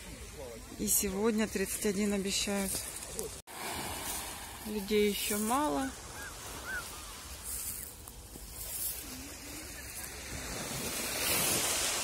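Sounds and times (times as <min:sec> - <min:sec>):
waves washing on pebble shore: 0:01.7 - 0:12.0.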